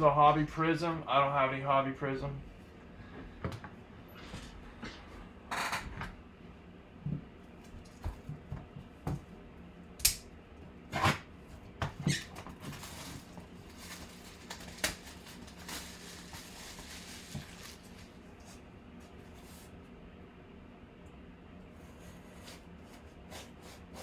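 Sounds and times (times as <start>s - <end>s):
cardboard rustling and scraping: 12.1s - 19.7s.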